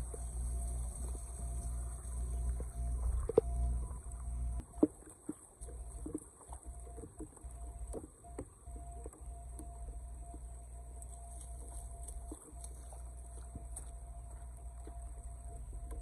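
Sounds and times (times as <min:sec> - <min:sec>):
steady high hiss: 0:00.0 - 0:04.7
footsteps splashing in water: 0:11.1 - 0:15.0.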